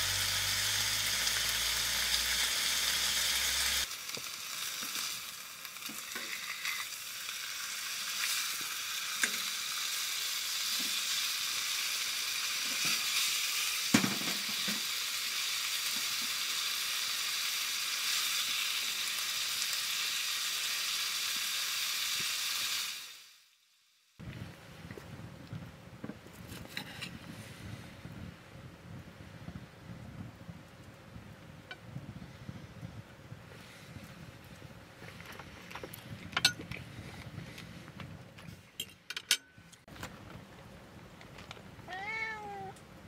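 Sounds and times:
chicken sizzling in a frying pan: 0:00.0 - 0:24.2.

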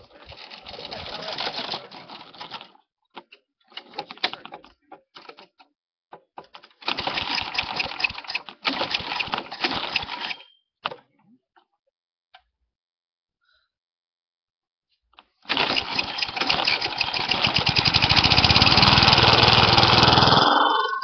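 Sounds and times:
lawn mower engine running: 0:15.5 - 0:20.9.

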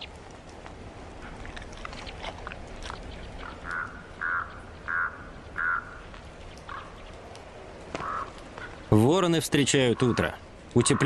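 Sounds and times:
raven croaking: 0:01.1 - 0:07.1, 0:07.9 - 0:09.0, 0:09.6 - 0:11.0.

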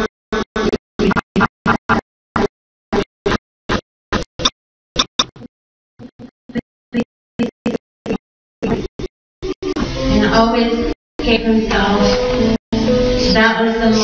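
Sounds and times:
woman speaking through a microphone: 0:10.2 - 0:12.2, 0:13.4 - 0:14.0.

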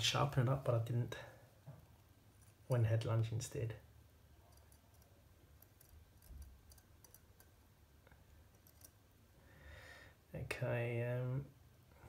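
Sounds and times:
tweezers clicking on watch parts: 0:04.5 - 0:07.5, 0:08.5 - 0:09.0.

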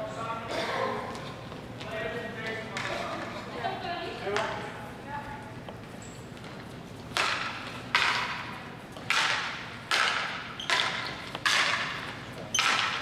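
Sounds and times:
hockey sticks striking ball: 0:07.1 - 0:13.0.

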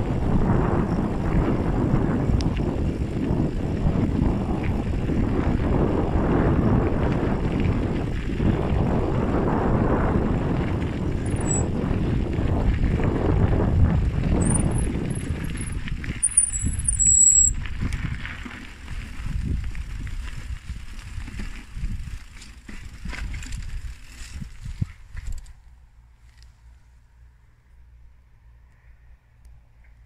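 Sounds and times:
bicycle rumbling on dirt track: 0:00.0 - 0:28.2
short high squeaks: 0:11.2 - 0:11.7, 0:14.4 - 0:17.6.

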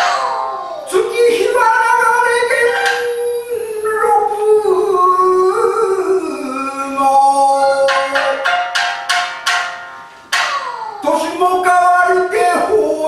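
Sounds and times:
shamisen string struck: 0:00.0 - 0:00.9, 0:02.5 - 0:03.4, 0:07.9 - 0:11.0
man singing long phrase: 0:00.9 - 0:08.4.

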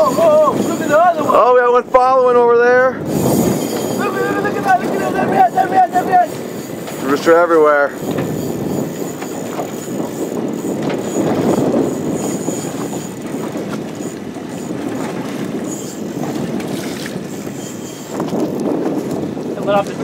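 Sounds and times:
sea water around boat: 0:00.0 - 0:20.0
wind rushing: 0:00.0 - 0:20.0.

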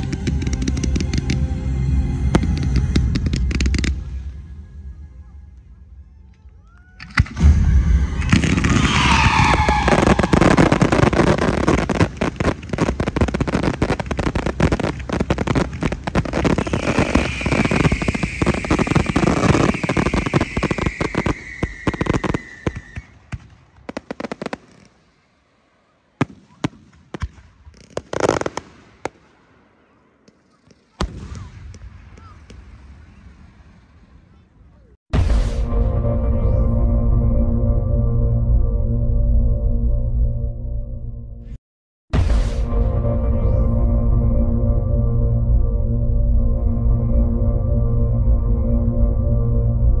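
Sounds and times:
fireworks bangs and crackling: 0:00.0 - 0:04.6, 0:07.0 - 0:34.9
firework whistle: 0:07.0 - 0:25.3.

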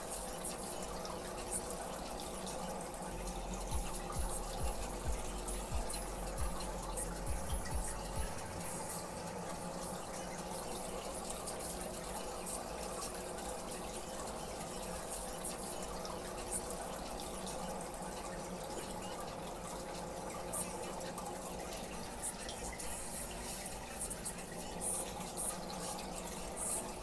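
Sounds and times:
aquarium filter water splashing: 0:00.0 - 0:27.0
faint steady hum: 0:00.0 - 0:27.0.

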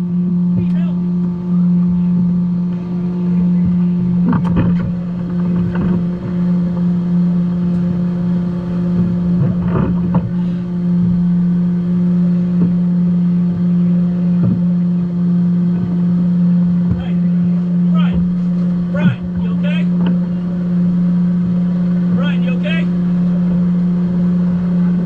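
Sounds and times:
boat engines idling: 0:00.0 - 0:25.0
knocks and rattles: 0:04.2 - 0:06.4.

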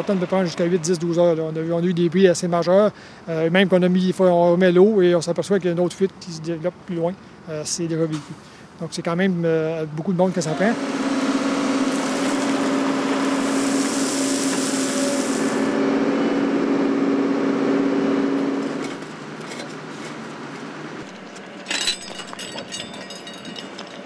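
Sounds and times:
diesel excavator engine: 0:00.0 - 0:05.0, 0:09.9 - 0:24.0
worksite noise: 0:10.0 - 0:24.0
metallic clatter: 0:21.2 - 0:24.0.

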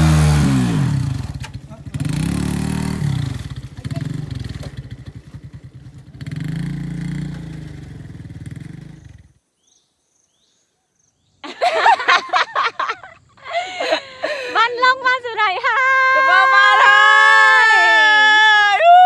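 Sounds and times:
motorcycle engine revving: 0:00.0 - 0:09.4.

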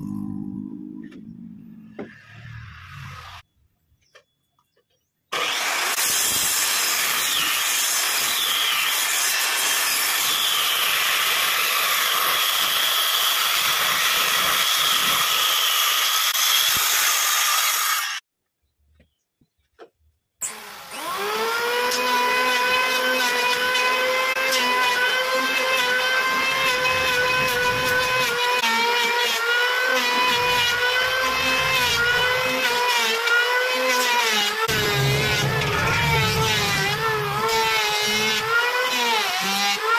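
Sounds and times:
circular saw cutting wood: 0:01.9 - 0:03.4, 0:05.3 - 0:18.2, 0:20.4 - 0:39.9
electric planer whining: 0:05.3 - 0:16.6, 0:20.4 - 0:39.9.

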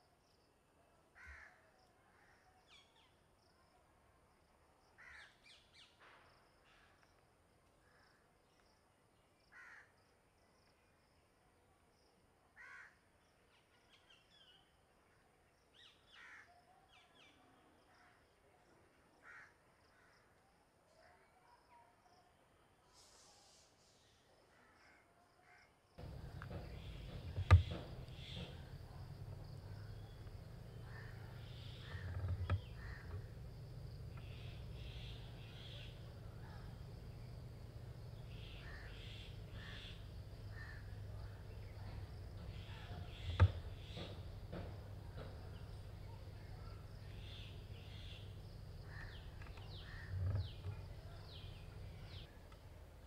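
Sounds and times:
sharp knocks: 0:26.0 - 0:29.4, 0:42.4 - 0:45.6
birds calling: 0:26.0 - 0:52.4.

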